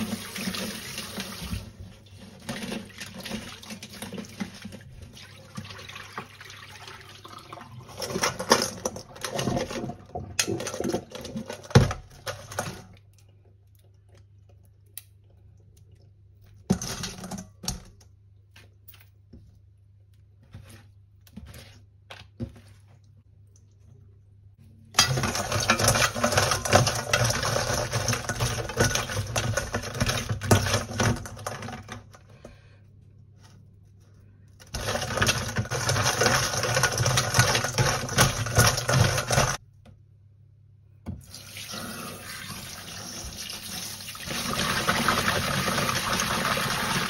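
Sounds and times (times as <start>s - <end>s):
water running from a tap: 0.0s - 1.8s, 2.6s - 8.0s, 41.2s - 47.0s.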